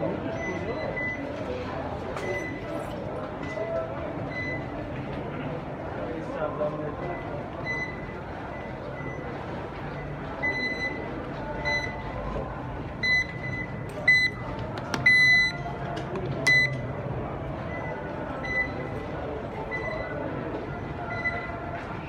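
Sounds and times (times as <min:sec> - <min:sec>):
crowd hubbub: 0:00.0 - 0:22.0
card reader beeps: 0:00.2 - 0:01.4, 0:02.2 - 0:02.9, 0:04.2 - 0:04.8, 0:07.0 - 0:12.1, 0:13.0 - 0:15.7, 0:16.5 - 0:16.9, 0:17.6 - 0:19.0, 0:19.6 - 0:20.3, 0:21.0 - 0:21.7.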